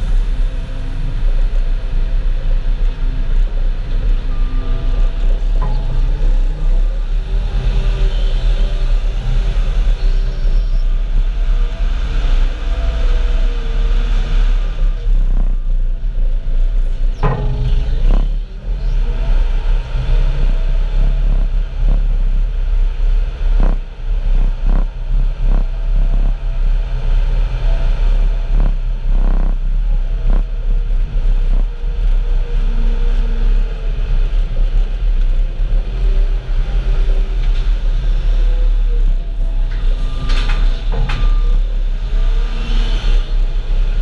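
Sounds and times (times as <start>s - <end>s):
farm machinery deep rumble: 0.0s - 44.0s
sharp knocks and clatters: 17.2s - 18.4s.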